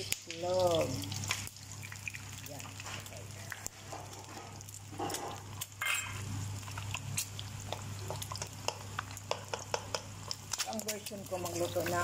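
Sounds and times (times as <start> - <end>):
eggs crackling in hot oil: 0.0 - 12.0
wooden spatula stirring eggs: 6.6 - 12.0.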